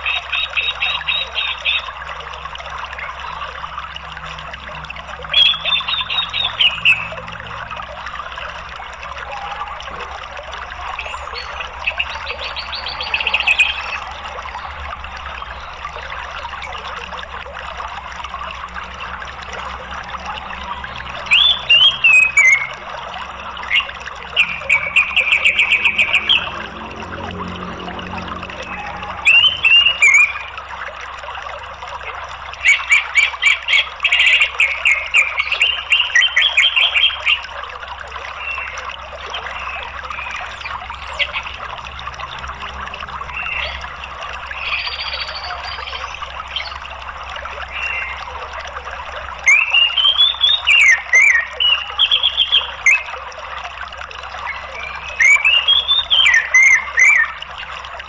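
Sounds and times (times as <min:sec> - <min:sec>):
flowing water: 0:00.0 - 0:58.0
bird song trills and whistles: 0:05.3 - 0:07.2, 0:21.2 - 0:22.8, 0:23.5 - 0:26.6, 0:28.5 - 0:30.6, 0:32.6 - 0:37.5, 0:49.4 - 0:53.2, 0:54.3 - 0:57.5.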